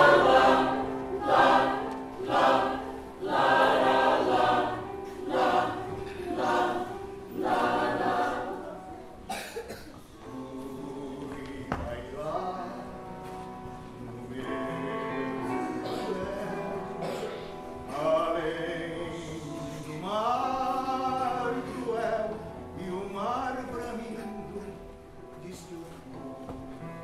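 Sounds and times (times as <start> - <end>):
mixed choir singing in harmony: 0.0 - 12.2, 14.2 - 22.9.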